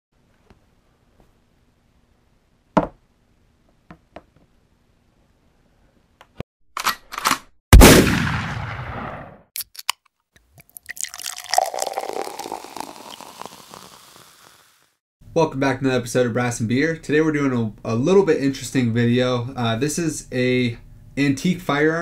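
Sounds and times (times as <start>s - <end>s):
gunshot with echoing tail: 7.7s - 9.4s
fizzing crackling hiss: 10.8s - 14.9s.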